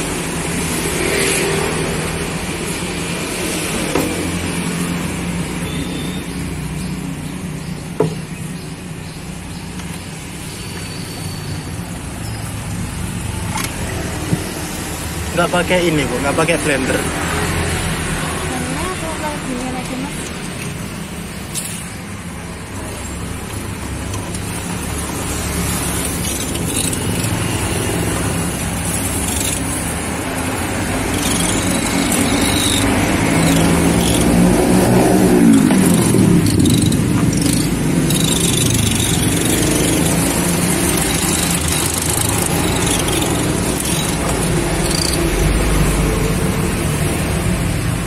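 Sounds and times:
road traffic going by: 0:00.0 - 0:48.0.

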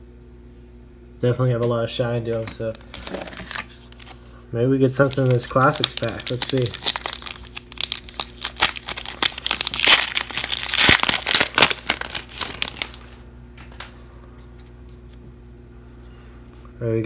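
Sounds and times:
wrapper tearing and crinkling: 0:02.7 - 0:04.2, 0:04.9 - 0:13.2.

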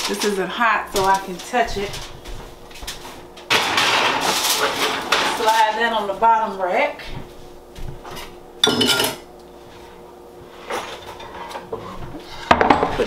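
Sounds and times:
pots and pans clattering: 0:03.4 - 0:05.8, 0:08.6 - 0:09.3, 0:10.7 - 0:13.0.

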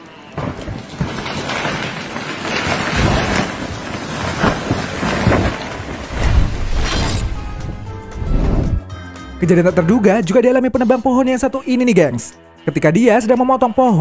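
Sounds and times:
falling wood rumbling: 0:00.4 - 0:08.9
heavy thuds: 0:06.1 - 0:08.9.

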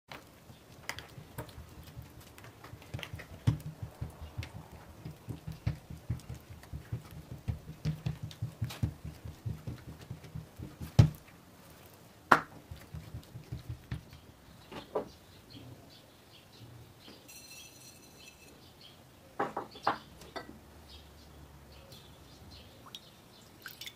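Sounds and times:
soft low thumps of dough: 0:01.1 - 0:11.3, 0:12.3 - 0:14.3.

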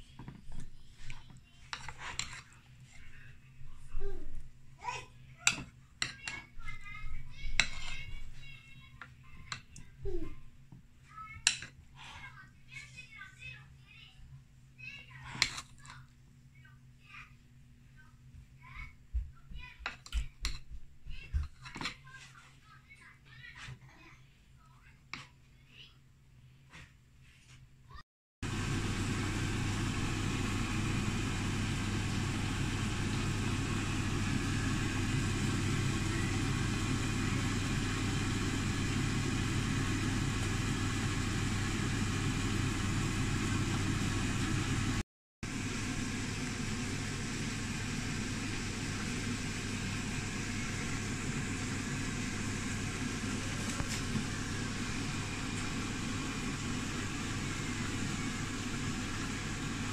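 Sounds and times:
steady mechanical motor hum: 0:28.4 - 0:59.9.

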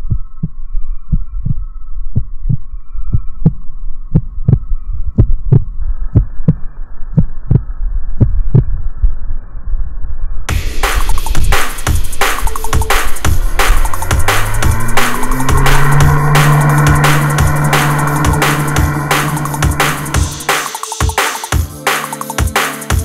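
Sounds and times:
heartbeat thumps: 0:00.0 - 0:08.8, 0:10.5 - 0:21.2.

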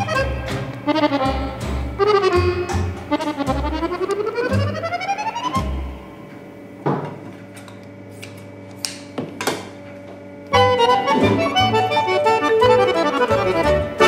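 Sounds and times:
accordion music: 0:00.0 - 0:06.2, 0:10.5 - 0:14.0.

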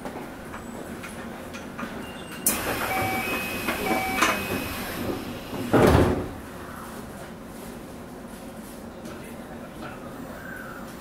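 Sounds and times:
train door chime beeping: 0:02.0 - 0:05.0
sliding doors thudding shut: 0:02.5 - 0:06.4.

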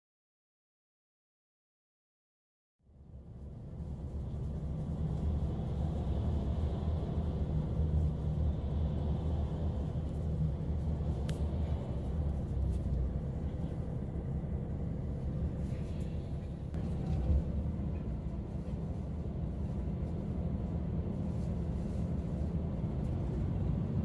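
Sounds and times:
vehicle engine rumble: 0:02.8 - 0:24.0.

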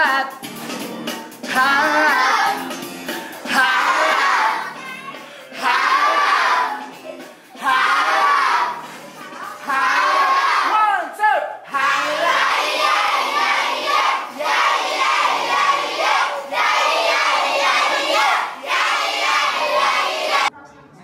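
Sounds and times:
children singing in unison: 0:01.5 - 0:02.6, 0:03.5 - 0:07.0, 0:07.6 - 0:10.7, 0:11.7 - 0:20.5.

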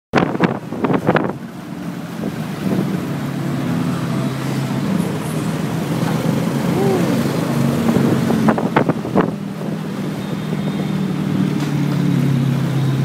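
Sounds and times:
traffic engine hum: 0:00.2 - 0:13.0
wind buffeting microphone: 0:07.0 - 0:10.0.

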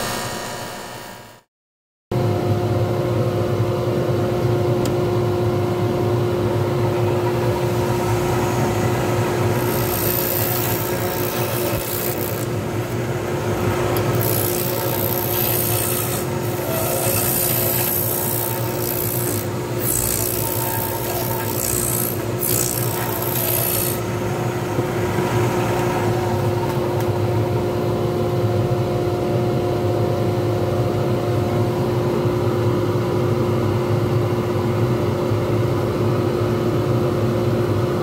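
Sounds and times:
lathe motor humming and whining: 0:05.4 - 0:30.3
turning tool scraping resin: 0:09.4 - 0:12.6, 0:13.9 - 0:24.1.

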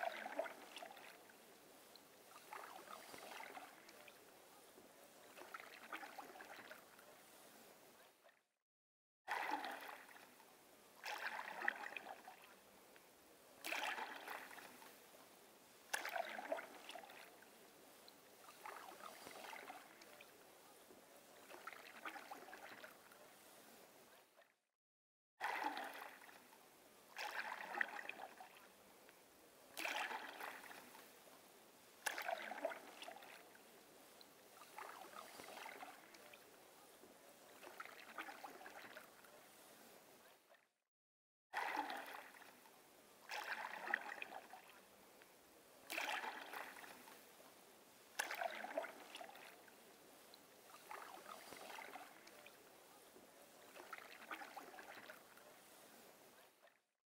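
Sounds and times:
canoe paddle splashing in water: 0:00.0 - 0:04.2, 0:05.2 - 0:07.7, 0:09.3 - 0:10.4, 0:11.0 - 0:12.5, 0:13.6 - 0:15.0, 0:15.8 - 0:20.4, 0:21.3 - 0:23.8, 0:25.4 - 0:26.5, 0:27.1 - 0:28.6, 0:29.7 - 0:31.1, 0:32.0 - 0:36.5, 0:37.4 - 0:40.0, 0:41.6 - 0:44.8, 0:45.9 - 0:47.3, 0:48.1 - 0:56.2.

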